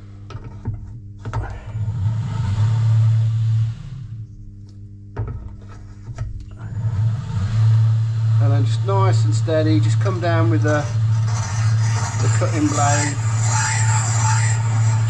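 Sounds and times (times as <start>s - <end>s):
steady low hum: 0.0s - 15.0s
machine motor running: 1.3s - 4.4s, 6.4s - 15.0s.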